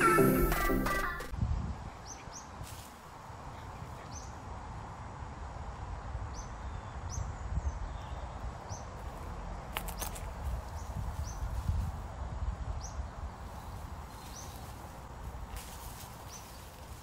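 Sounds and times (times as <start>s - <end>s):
small bird chirping: 12.8s - 14.8s.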